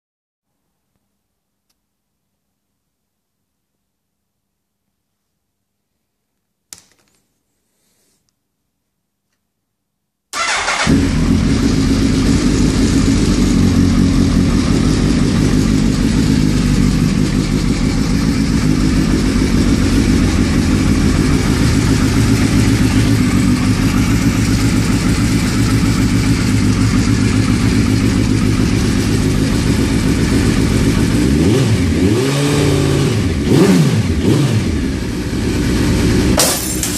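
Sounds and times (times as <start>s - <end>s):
motorcycle engine idling and revving: 10.4s - 36.9s.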